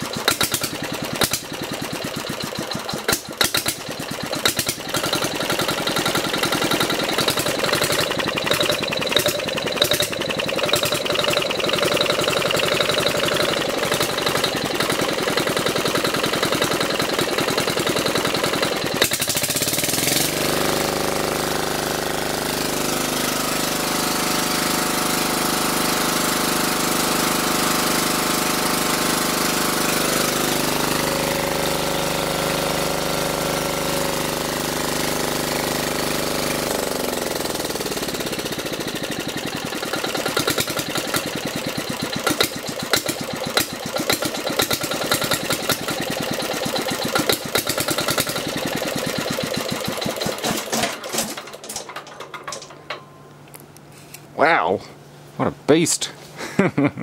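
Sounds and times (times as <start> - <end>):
diesel generator engine running: 0.0 - 56.4
irregular clicks and knocks: 49.8 - 53.8.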